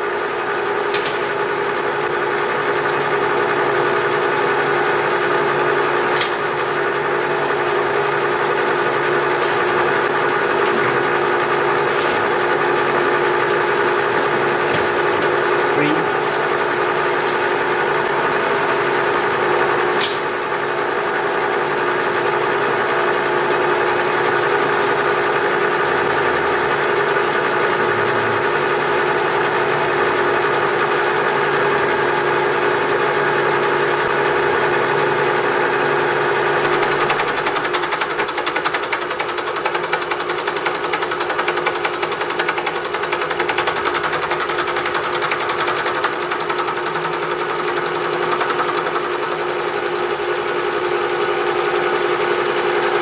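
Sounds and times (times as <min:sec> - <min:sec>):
milling machine running: 0:33.6 - 0:52.8.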